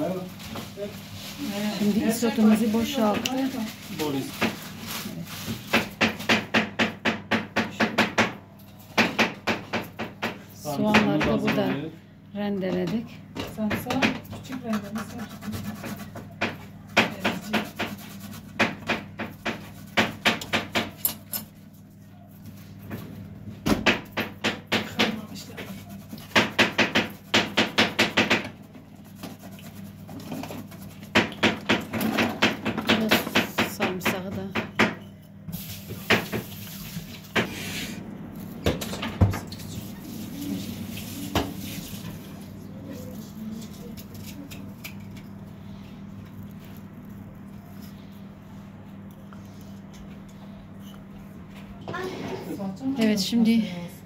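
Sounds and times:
onion grated on metal grater: 0:14.5 - 0:16.2, 0:17.0 - 0:20.5.

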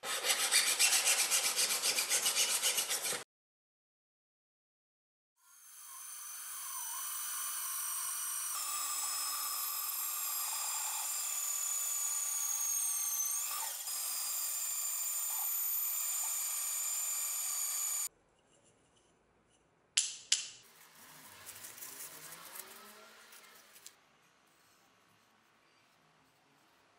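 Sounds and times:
band saw cutting wood: 0:05.4 - 0:18.1.

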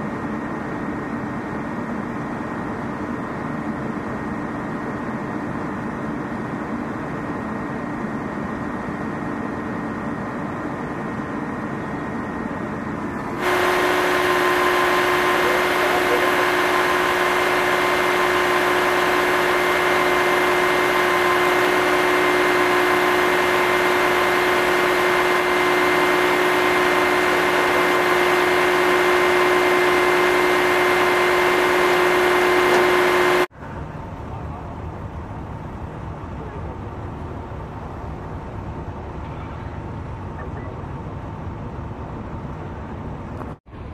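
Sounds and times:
tow truck engine droning: 0:00.0 - 0:43.9
hydraulic winch whine: 0:13.0 - 0:33.5
street background noise: 0:33.5 - 0:43.9.

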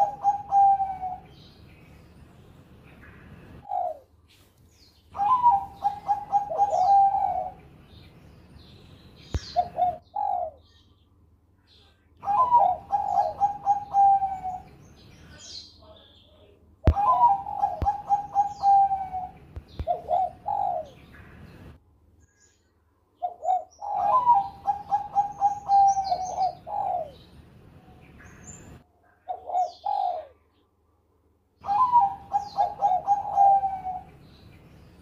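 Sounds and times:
dove cooing: 0:00.0 - 0:01.5, 0:03.5 - 0:04.1, 0:05.1 - 0:07.7, 0:09.4 - 0:10.7, 0:12.2 - 0:14.8, 0:16.9 - 0:21.2, 0:23.2 - 0:27.2, 0:29.2 - 0:30.6, 0:31.6 - 0:34.2.

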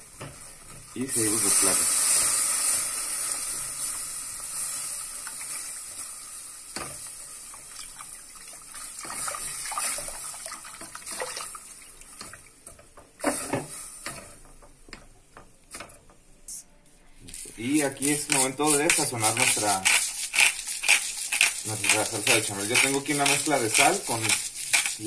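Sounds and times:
sizzling hiss in a pot: 0:00.0 - 0:15.0, 0:16.5 - 0:25.0
liquid sloshing: 0:07.8 - 0:12.6
spatula scraping a pot: 0:17.4 - 0:25.0.

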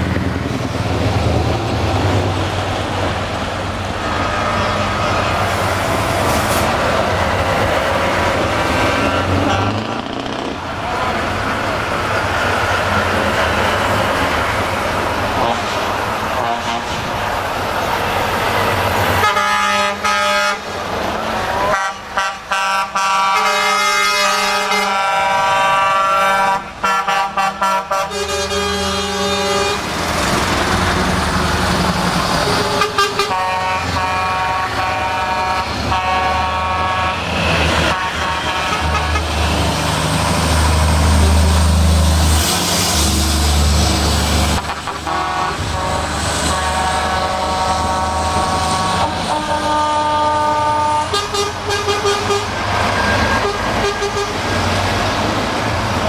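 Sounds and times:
diesel truck engines rumbling: 0:00.0 - 0:56.0
truck air horns blasting: 0:08.8 - 0:10.0, 0:15.3 - 0:17.2, 0:19.1 - 0:30.0, 0:32.4 - 0:39.7, 0:44.5 - 0:54.7.

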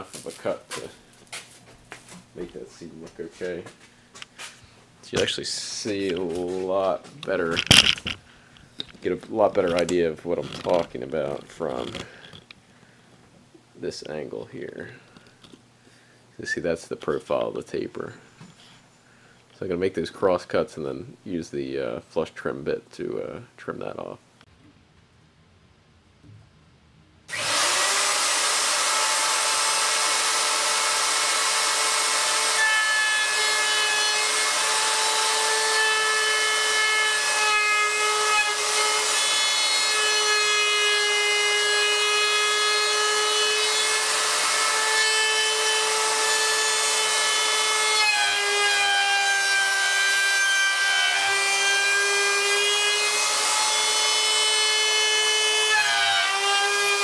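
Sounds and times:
router whining: 0:08.8 - 0:12.6, 0:27.3 - 0:57.0.

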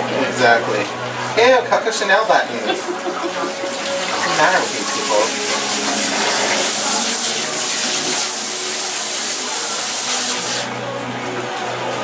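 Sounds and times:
water sprayer hissing: 0:02.9 - 0:10.7.

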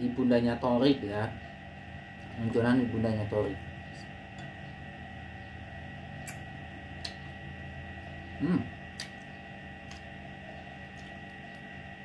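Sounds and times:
electrical hum: 0:00.0 - 0:12.0
person humming: 0:08.4 - 0:08.7.

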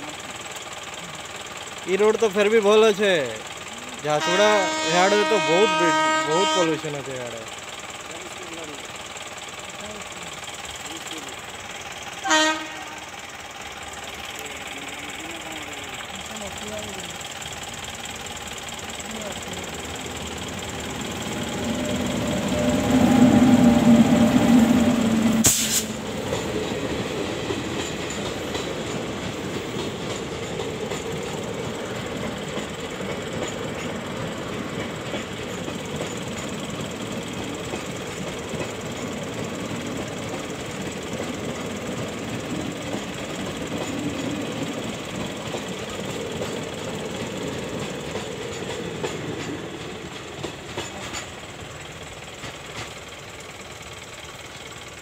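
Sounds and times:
train wheels clattering on track: 0:00.0 - 0:55.0
loud steady tone: 0:04.1 - 0:07.2
sharp clank: 0:25.4 - 0:26.0.

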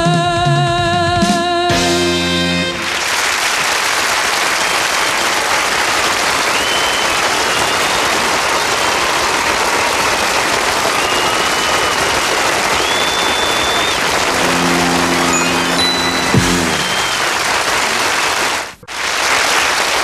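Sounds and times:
audience applauding: 0:02.6 - 0:20.0
band's final chord with held note: 0:14.2 - 0:17.5.

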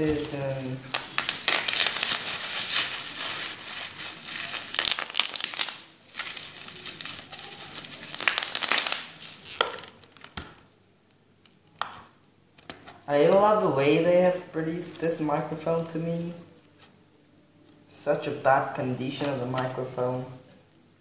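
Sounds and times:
bubble wrap crackling: 0:00.0 - 0:13.2.

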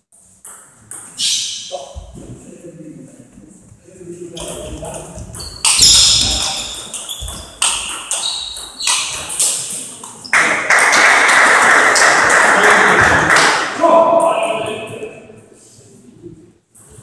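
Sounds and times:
table tennis ball pinging: 0:04.4 - 0:10.3.

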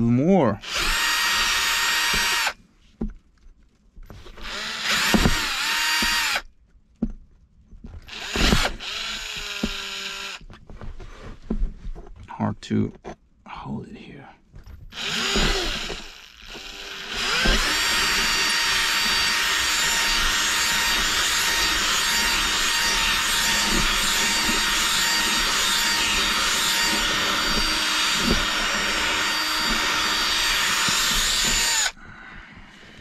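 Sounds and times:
cordless drill boring: 0:00.6 - 0:02.6, 0:04.2 - 0:06.5, 0:08.1 - 0:10.4, 0:14.9 - 0:32.0.

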